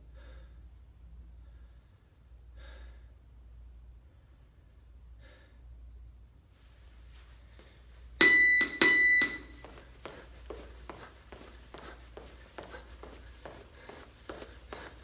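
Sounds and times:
light footfalls: 9.4 - 15.0.

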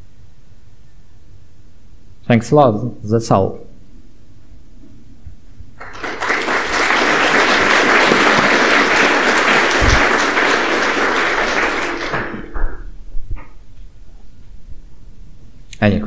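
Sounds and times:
audience applauding: 5.8 - 12.7.

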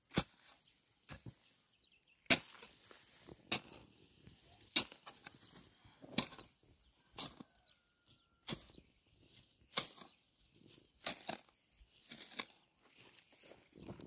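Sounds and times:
hoe striking soil: 0.0 - 1.5, 2.2 - 7.6, 8.4 - 10.3, 10.9 - 12.7
loose earth rustling: 0.0 - 14.0.

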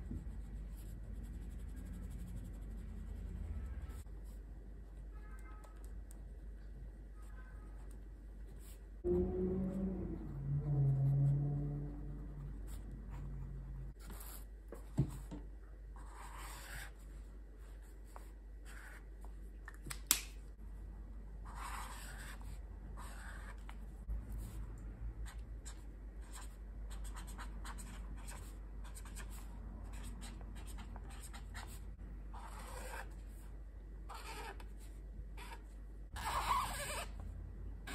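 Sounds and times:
pen scratching on paper: 0.0 - 4.4, 16.0 - 17.1, 18.1 - 19.2, 21.5 - 23.8, 25.2 - 33.4, 34.1 - 37.2
low humming tone: 9.0 - 14.0.

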